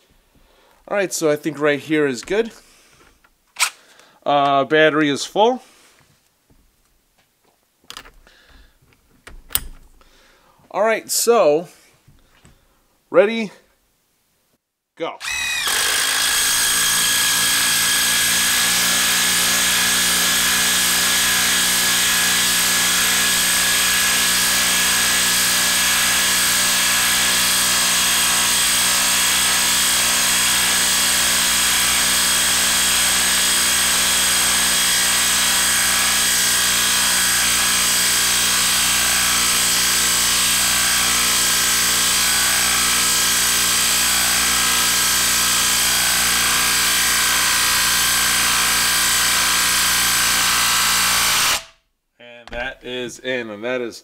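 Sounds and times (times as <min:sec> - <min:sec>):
impact wrench hammering: 0:15.2 - 0:51.7.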